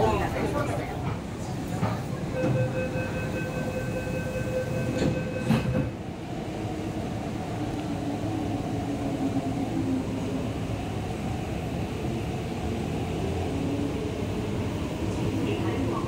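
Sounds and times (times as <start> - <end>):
low wavering train hum: 0.0 - 16.0
electronic warning tone: 2.4 - 5.9.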